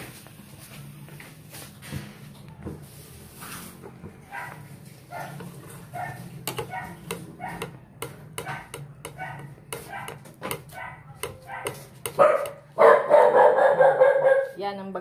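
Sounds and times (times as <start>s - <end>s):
dog barking: 4.3s - 7.8s, 8.4s - 14.6s.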